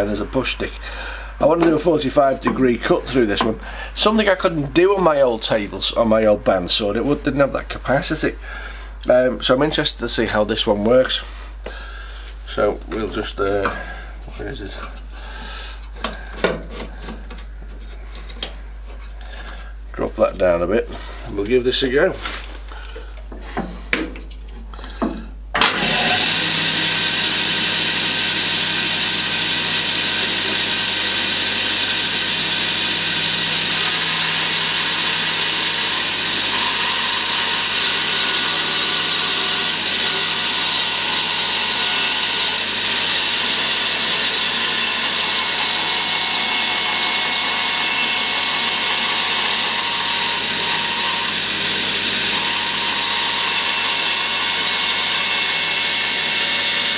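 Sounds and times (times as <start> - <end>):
bandsaw cutting wood: 25.6 - 56.9.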